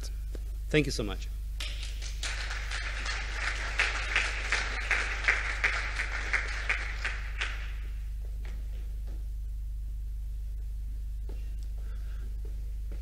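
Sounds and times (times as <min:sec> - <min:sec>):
steady low hum: 0:00.0 - 0:13.0
small group applauding: 0:01.6 - 0:08.7.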